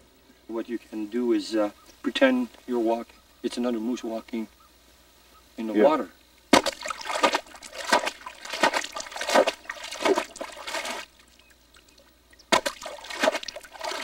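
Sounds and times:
rhythmic water splashing: 6.5 - 14.0.

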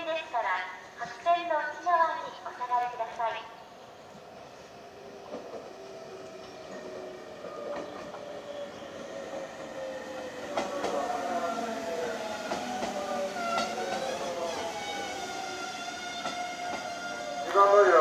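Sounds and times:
train clanking: 5.2 - 18.0.

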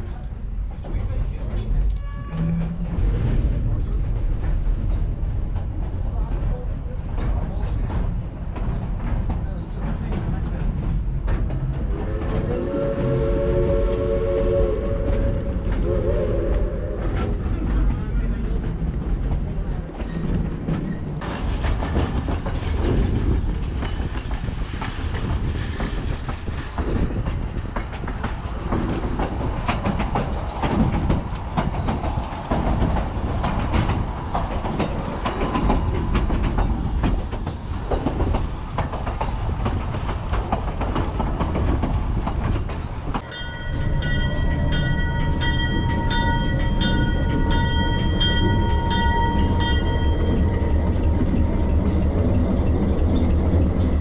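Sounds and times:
diesel locomotive engine rumbling: 0.0 - 54.0
train wheels clacking over rail joints: 0.0 - 54.0
locomotive bell ringing: 43.2 - 53.8.

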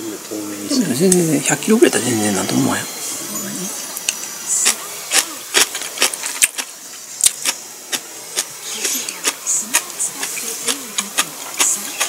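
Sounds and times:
wet chewing clicks and smacks: 4.0 - 12.0.

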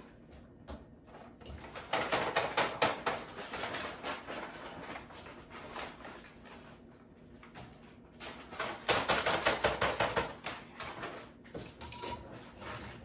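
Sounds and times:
packages clattering and rustling: 1.1 - 13.0.

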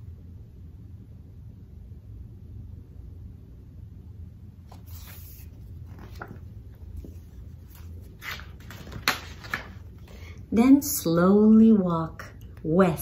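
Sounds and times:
low steady hum: 0.0 - 13.0
book pages rustling and turning: 4.6 - 10.1.

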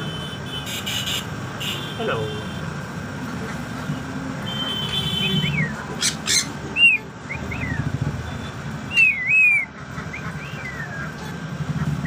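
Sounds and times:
parrot whistling: 5.2 - 7.8, 8.9 - 11.1.

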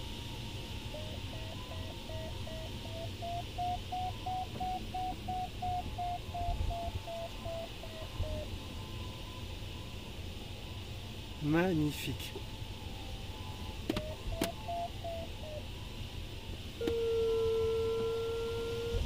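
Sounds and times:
variometer beeping: 0.7 - 9.4, 13.8 - 15.6.

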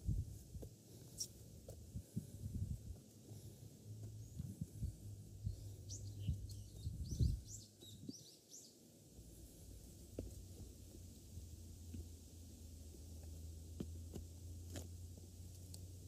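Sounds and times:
footsteps on a trail: 0.2 - 5.0, 9.4 - 11.1, 12.8 - 15.7
small bird chirping: 5.4 - 8.8.

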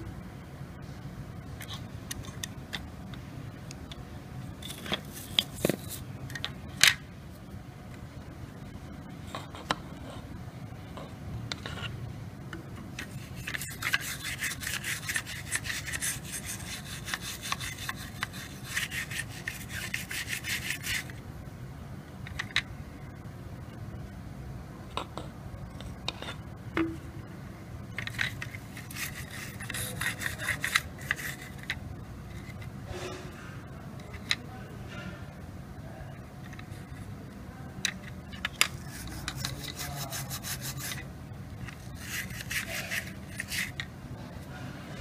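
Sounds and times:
steady low hum: 0.0 - 45.0
rapid scrubbing strokes: 13.0 - 21.1, 28.6 - 31.7, 38.7 - 41.1, 41.8 - 43.8.

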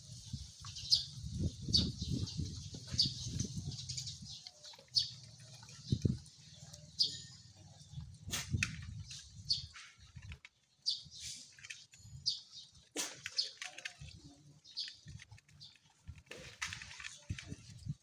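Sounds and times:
dogs chewing and gulping: 4.3 - 8.2.

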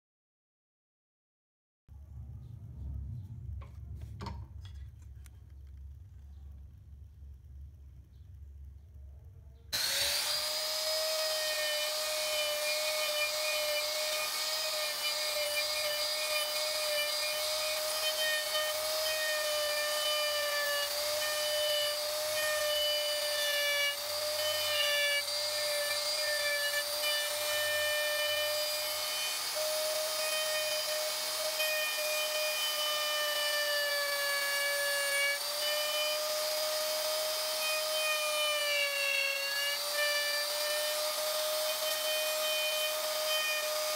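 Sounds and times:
electric router cutting wood: 9.8 - 43.9.

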